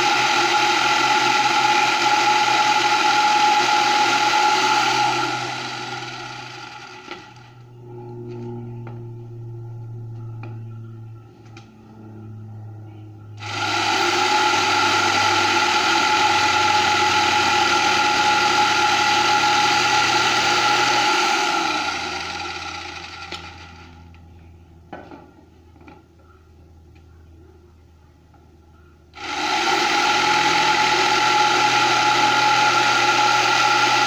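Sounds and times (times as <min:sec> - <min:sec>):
electric jigsaw sawing wood: 0:00.0 - 0:07.6, 0:13.4 - 0:24.0, 0:29.2 - 0:34.0.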